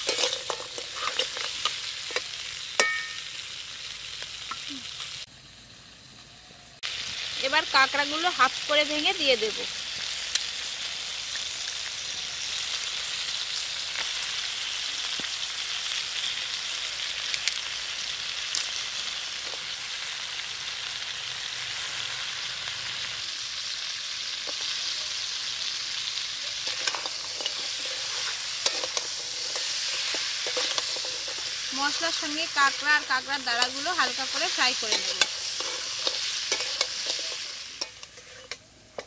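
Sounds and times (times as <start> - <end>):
spatula scraping a pan: 0.0 - 2.3, 26.6 - 39.0
food sizzling in a wok: 0.0 - 39.0.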